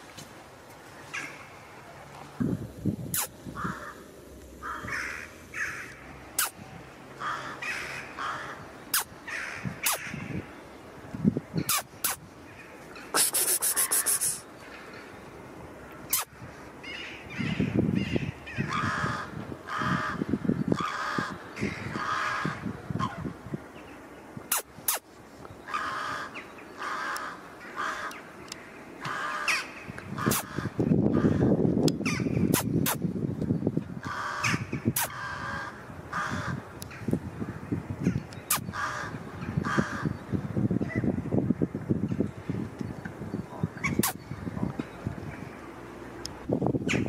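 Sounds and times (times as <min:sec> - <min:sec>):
crows cawing: 0:03.6 - 0:06.0, 0:07.2 - 0:08.7, 0:09.3 - 0:10.4, 0:16.8 - 0:23.2, 0:25.7 - 0:28.3, 0:29.0 - 0:32.3, 0:34.0 - 0:37.0, 0:38.7 - 0:40.2.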